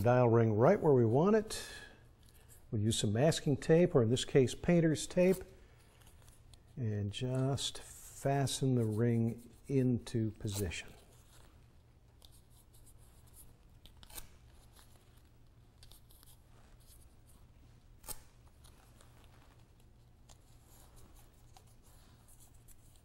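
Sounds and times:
tape crinkling and rubbing: 5.1s - 9.7s, 10.3s - 23.0s
tape tearing snaps: 13.8s - 14.9s, 18.0s - 19.1s.

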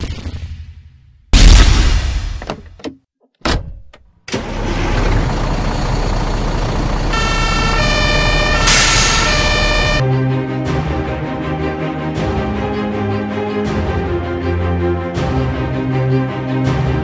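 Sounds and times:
fire engine two-tone siren: 6.2s - 10.0s
music: 10.0s - 17.0s.

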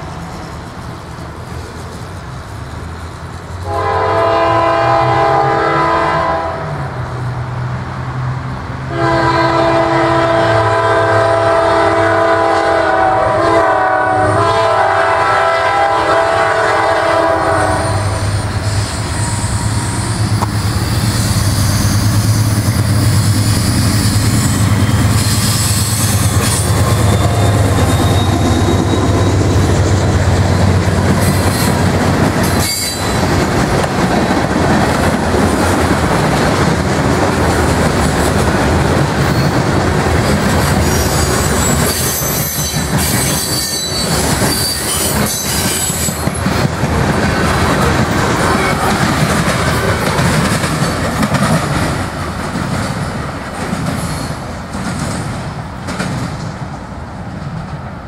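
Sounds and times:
diesel locomotive engine rumbling: 0.0s - 58.0s
locomotive air horn: 3.6s - 6.7s, 8.9s - 20.3s
freight cars clacking over rails: 21.6s - 57.8s.

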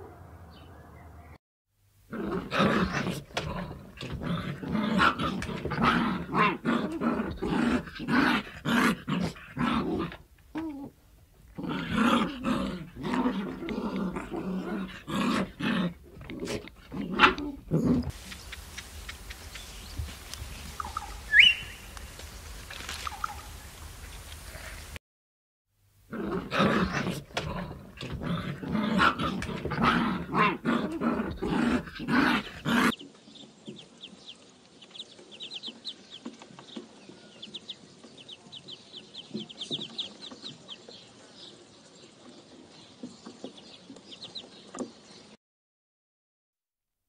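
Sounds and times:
bird chirps: 18.2s - 22.0s
ducklings peeping: 18.2s - 22.0s, 32.7s - 44.9s.

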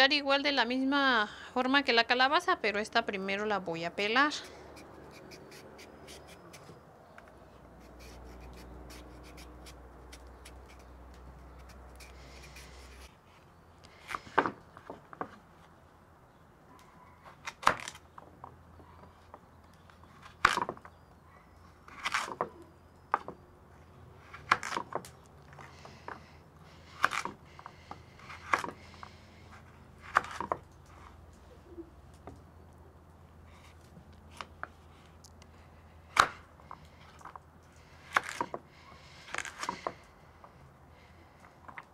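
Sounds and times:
knife scraping carrot: 4.3s - 6.8s, 7.8s - 13.2s.

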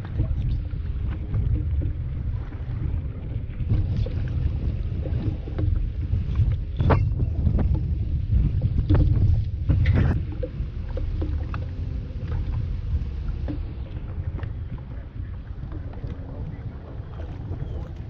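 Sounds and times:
water lapping at boat hull: 0.0s - 18.0s
wind buffeting microphone: 0.0s - 18.0s.

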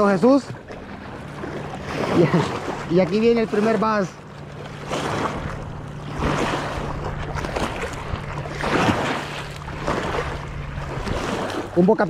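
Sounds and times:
water lapping at shore: 0.0s - 12.0s
wind on microphone: 4.9s - 12.0s.

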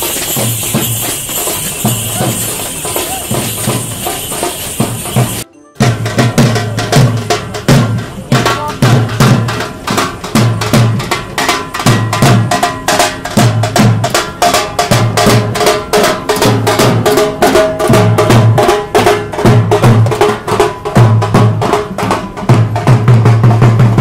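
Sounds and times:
pitched tune: 0.0s - 7.4s
procession drums beating: 0.0s - 24.0s.

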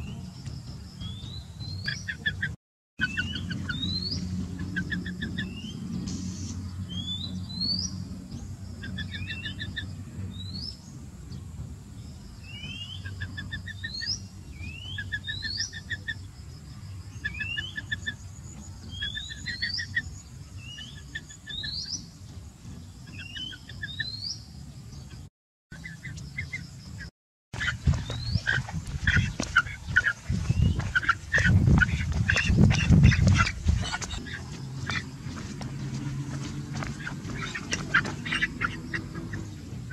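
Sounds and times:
steady low rumble: 0.0s - 39.9s
bird whistling calls: 1.0s - 5.8s, 12.4s - 16.2s.

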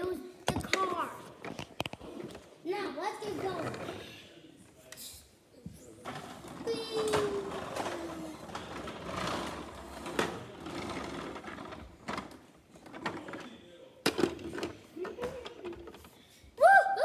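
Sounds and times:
plastic toys rustling and clattering: 0.5s - 2.5s, 6.0s - 16.4s.

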